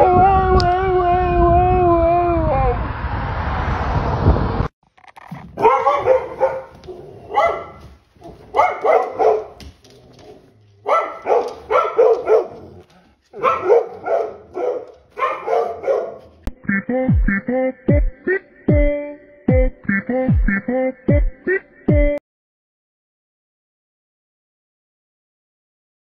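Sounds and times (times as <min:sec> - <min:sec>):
dog barking: 0:05.6 - 0:09.7, 0:10.8 - 0:16.5.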